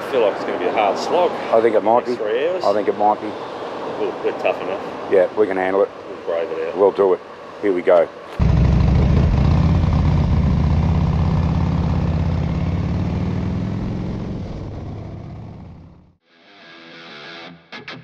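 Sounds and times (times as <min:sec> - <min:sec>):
motorcycle engines running: 0:08.4 - 0:16.2.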